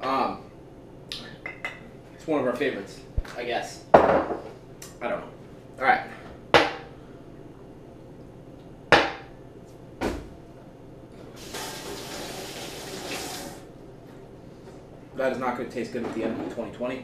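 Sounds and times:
faucet running: 0:11.4 - 0:13.7.

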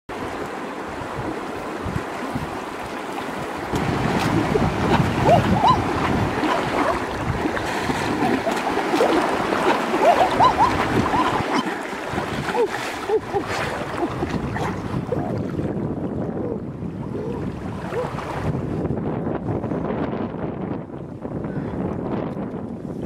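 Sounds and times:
river rushing over rocks: 0:00.1 - 0:14.1
splashing through water: 0:02.2 - 0:15.7.

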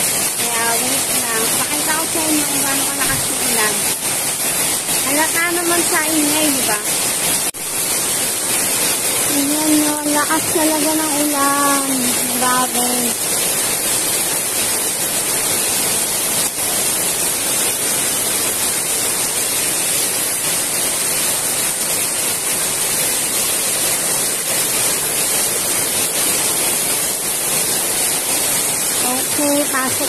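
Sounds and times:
heavy rain pouring: 0:00.0 - 0:30.0.

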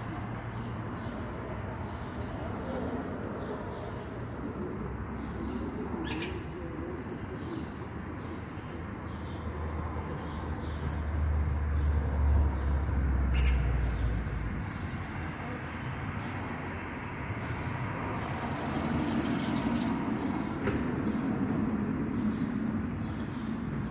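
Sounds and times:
rumble of passing traffic: 0:00.0 - 0:23.9
faint bird calls: 0:05.3 - 0:08.4.

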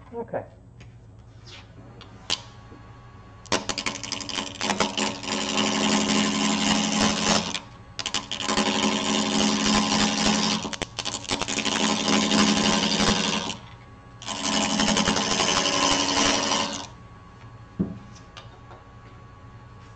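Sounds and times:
lathe motor hum: 0:01.8 - 0:17.0
lathe gouge rattling on log: 0:03.5 - 0:13.6, 0:14.2 - 0:16.9.

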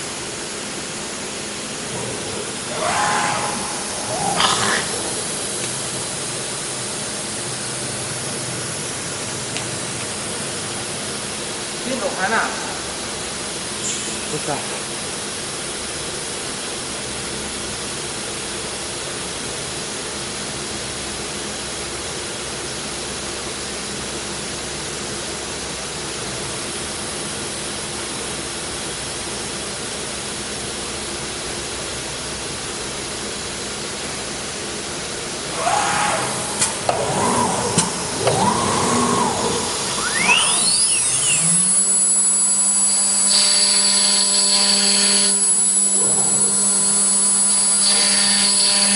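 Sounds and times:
machine hiss: 0:00.0 - 0:12.1, 0:35.3 - 0:48.9
spindle high-pitched whine: 0:00.0 - 0:19.5, 0:35.2 - 0:48.9
router whirring and cutting: 0:35.6 - 0:48.9.

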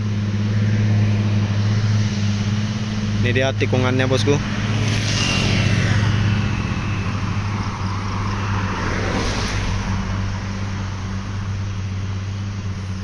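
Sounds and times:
steady low hum: 0:00.0 - 0:13.0
car driving past: 0:04.0 - 0:11.5.

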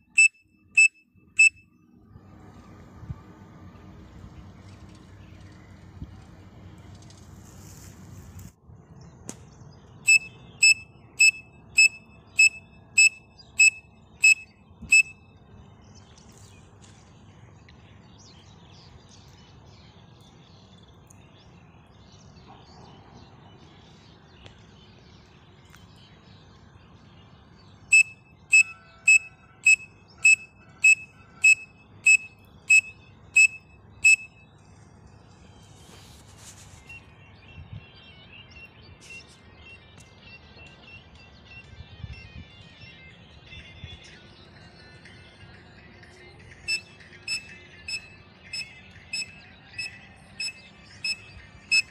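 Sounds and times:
shrill pen cap whistle notes: 0:10.1 - 0:15.1.

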